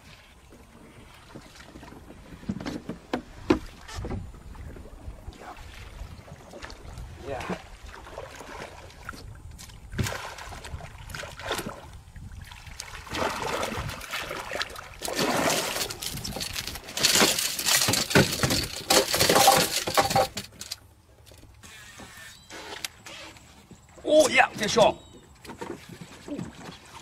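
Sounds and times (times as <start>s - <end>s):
fish splashing in water: 9.8s - 16.2s.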